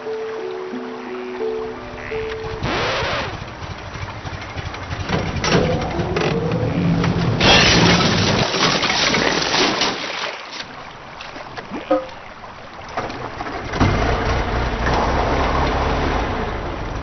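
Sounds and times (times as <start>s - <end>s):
pickup truck engine running: 2.2s - 7.4s.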